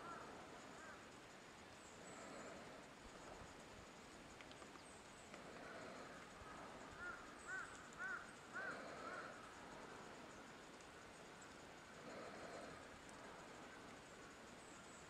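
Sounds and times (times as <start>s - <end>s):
distant bird calling: 0.0s - 2.8s, 4.6s - 10.6s
faint forest hiss: 0.0s - 15.0s.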